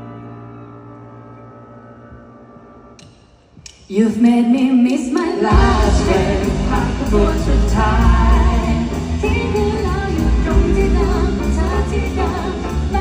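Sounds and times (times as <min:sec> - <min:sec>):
person singing: 0:03.9 - 0:13.0
pop band with heavy bass: 0:04.8 - 0:13.0.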